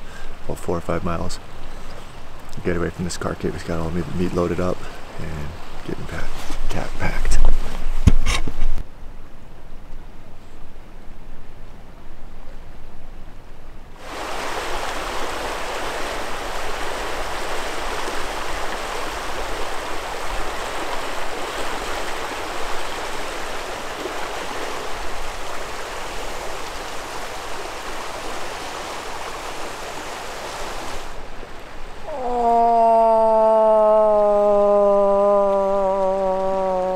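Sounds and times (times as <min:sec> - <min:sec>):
river water rushing over gravel: 0:14.0 - 0:32.1.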